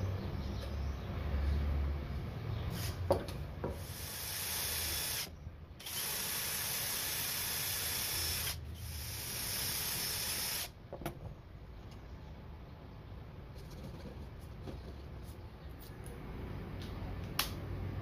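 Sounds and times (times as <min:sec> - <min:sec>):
cordless drill boring into wood: 0:03.8 - 0:10.7.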